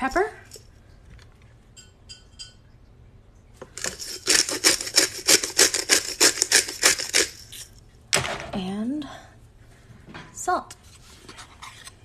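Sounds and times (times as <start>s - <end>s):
pepper mill grinding: 3.7s - 7.8s.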